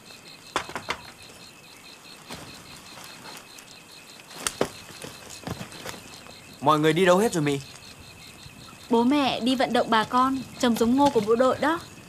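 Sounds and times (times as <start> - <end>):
sharp knocks: 0.5 - 1.2.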